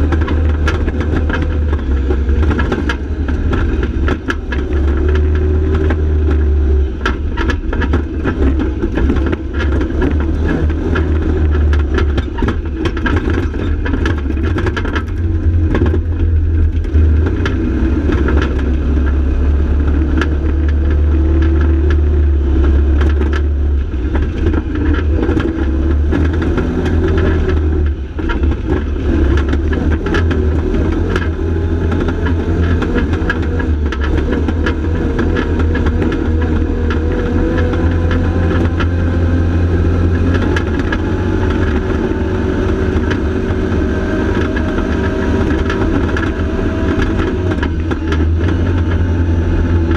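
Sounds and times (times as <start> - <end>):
rattles and knocks from cab: 0.0 - 49.9
utility vehicle engine running: 0.0 - 49.9.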